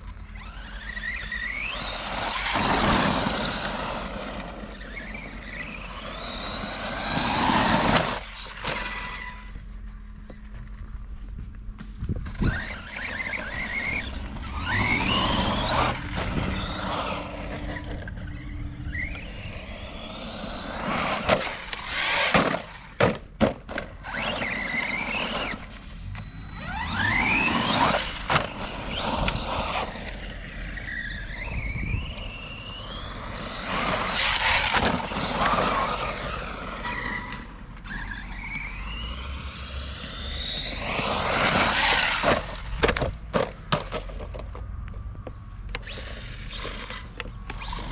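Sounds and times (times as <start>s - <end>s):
electric motor whining: 0.0s - 9.7s, 12.1s - 23.0s, 23.9s - 42.9s, 45.7s - 47.9s
tyres scrabbling on dirt: 0.4s - 25.9s, 26.6s - 39.0s.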